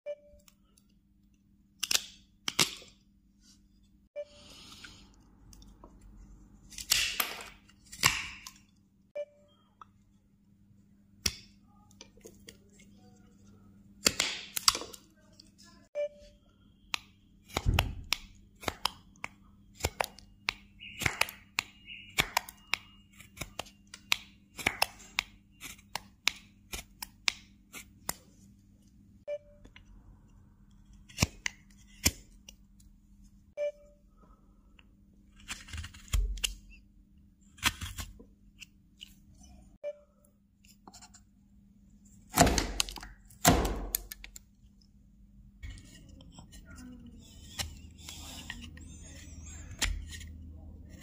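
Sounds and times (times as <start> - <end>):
knife carving wood: 1.8 - 2.9, 16.9 - 28.3, 30.7 - 32.6, 35.3 - 36.8, 37.4 - 39.2, 45.6 - 51.0.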